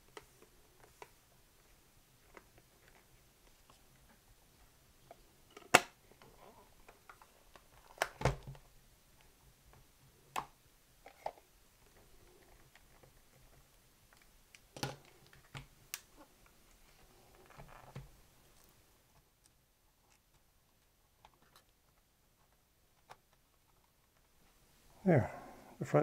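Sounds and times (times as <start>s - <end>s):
cassette recorder being handled: 5.5s - 8.6s.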